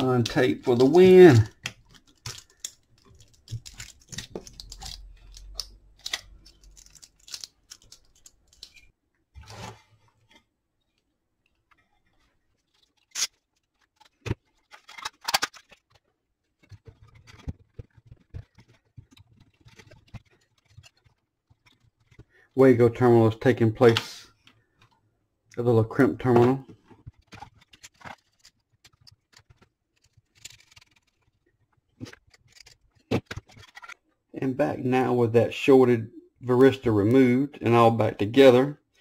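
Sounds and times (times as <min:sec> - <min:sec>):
tape rustling: 0:00.0 - 0:10.5, 0:11.5 - 0:22.6, 0:25.9 - 0:34.1.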